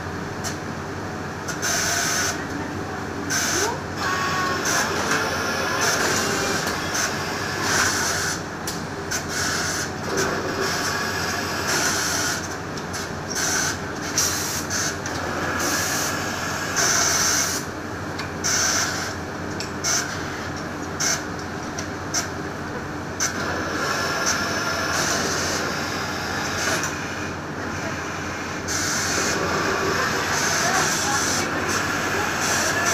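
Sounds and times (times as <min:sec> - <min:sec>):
machine humming: 0:22.7 - 0:32.9.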